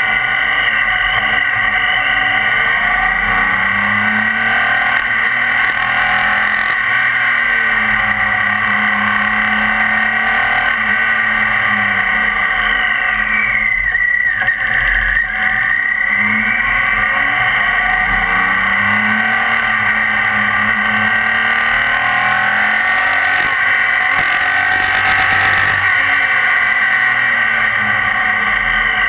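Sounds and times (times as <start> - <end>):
motorcycle engine running: 2.5 - 11.1, 18.2 - 29.0.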